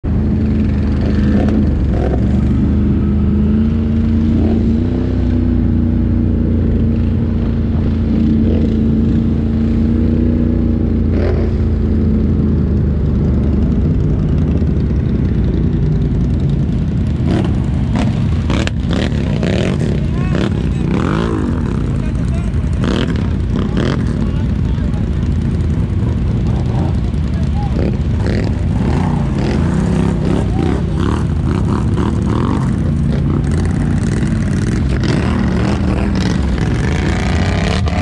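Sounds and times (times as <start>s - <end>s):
atv engine running: 0.0s - 38.0s.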